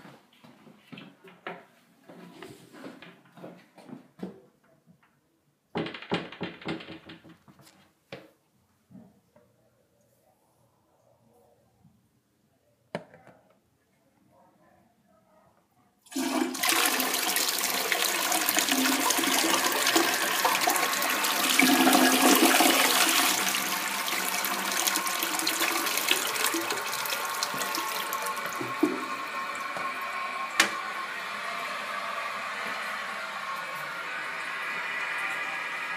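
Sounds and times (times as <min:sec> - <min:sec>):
toilet flushing: 0:16.1 - 0:35.9.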